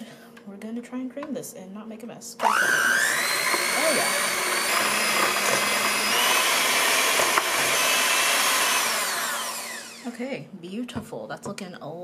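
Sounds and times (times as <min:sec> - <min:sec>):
electric hand mixer whining: 0:02.4 - 0:10.2.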